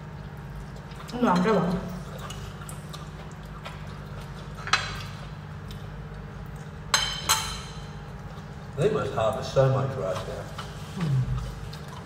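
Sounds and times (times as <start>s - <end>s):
steady low hum: 0.0s - 12.0s
cutlery clinking on dishes: 6.9s - 7.8s.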